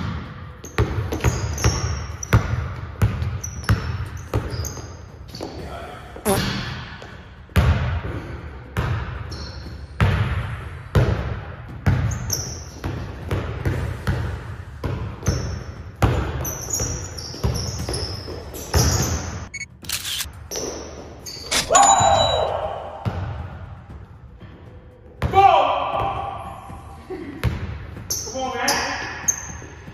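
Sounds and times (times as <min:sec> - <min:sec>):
basketball bouncing on wooden floor: 0:00.0 - 0:05.5, 0:07.0 - 0:08.2, 0:08.8 - 0:19.4, 0:27.4 - 0:28.2.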